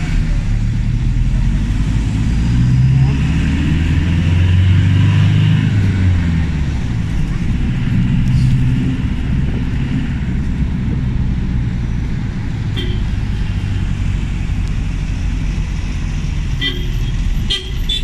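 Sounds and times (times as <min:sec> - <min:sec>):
engine and road rumble: 0:00.0 - 0:18.0
car horn toots: 0:12.8 - 0:13.1, 0:16.6 - 0:18.0.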